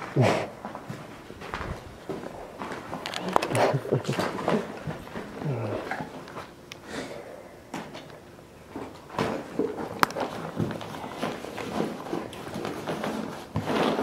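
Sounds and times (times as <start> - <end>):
footsteps on debris: 0.6 - 6.6.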